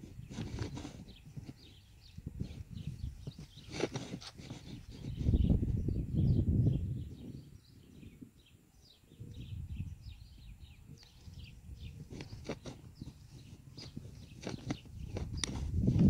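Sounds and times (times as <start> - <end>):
small birds chirping: 0.0 - 16.0
wind rumbling on microphone: 0.0 - 16.0.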